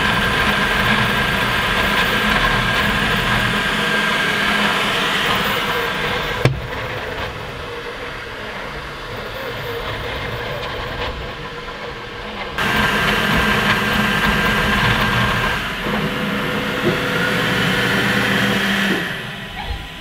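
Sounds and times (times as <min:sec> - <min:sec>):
fan whir: 0:00.0 - 0:20.0
stepper motors whining: 0:00.0 - 0:20.0.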